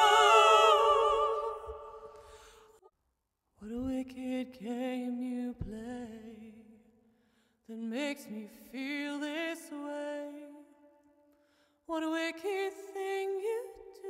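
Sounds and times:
woman singing with vibrato: 0.0 - 2.2.

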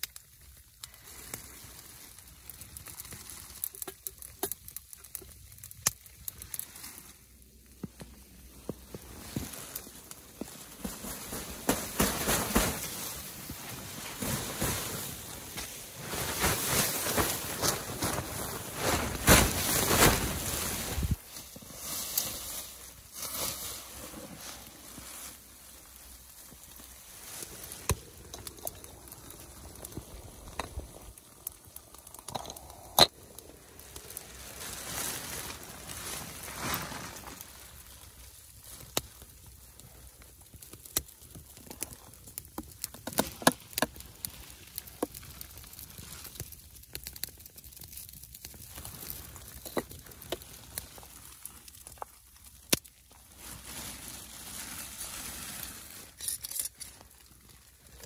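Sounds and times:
sharp clicks and crackles: 2.4 - 6.8, 26.5 - 34.2, 38.7 - 53.2, 56.1 - 57.2.

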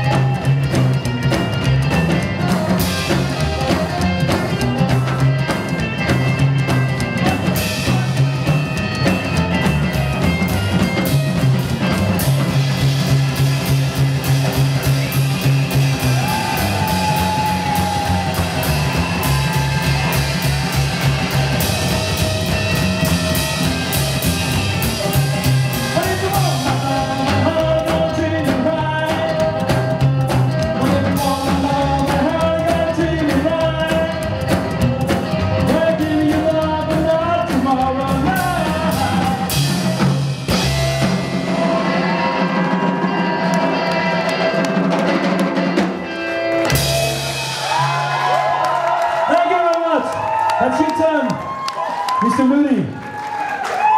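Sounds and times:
rockabilly band playing live: 0.0 - 53.9
man singing lead: 25.7 - 40.1.

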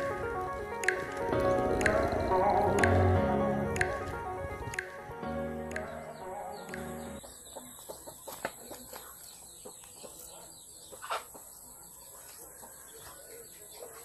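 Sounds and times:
background music: 0.0 - 7.2
chickens clucking: 5.7 - 14.0.

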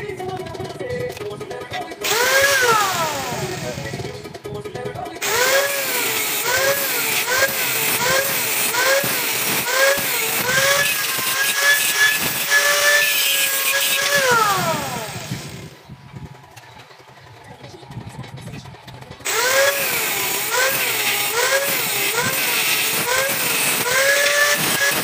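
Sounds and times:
angle grinder cutting metal: 2.0 - 4.2, 5.2 - 15.8, 19.2 - 25.0.

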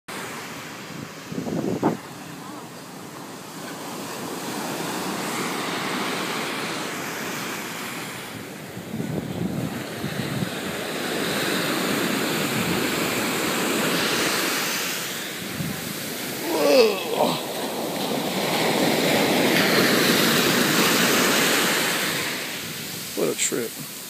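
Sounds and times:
ocean surf washing on sand: 0.1 - 24.0
short cry: 16.4 - 17.5.

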